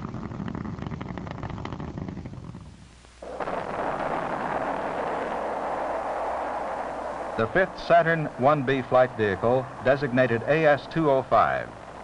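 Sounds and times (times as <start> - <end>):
crackling rocket roar: 0.0 - 12.0
rocket engines rushing: 3.2 - 12.0.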